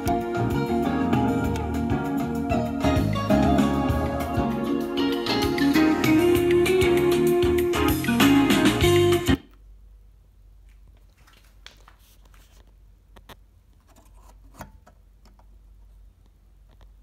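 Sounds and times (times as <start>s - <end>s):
music through a speaker: 0.0s - 9.5s.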